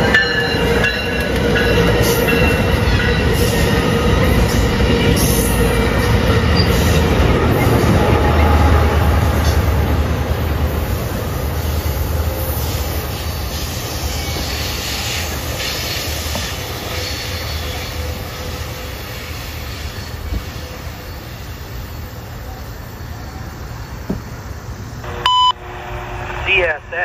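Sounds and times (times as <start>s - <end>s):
train wheels rumbling on rails: 0.0s - 25.1s
radio broadcast: 25.0s - 27.0s
radio scanner beep: 25.1s - 25.6s.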